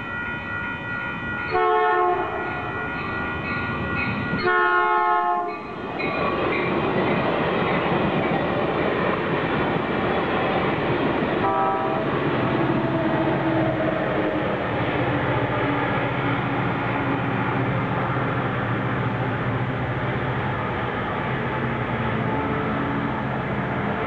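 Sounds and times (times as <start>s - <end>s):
diesel locomotive engine drone: 0.0s - 24.0s
train rumble and rail clatter: 0.0s - 24.0s
train horn blast: 1.5s - 3.5s, 4.3s - 5.6s, 11.4s - 12.1s.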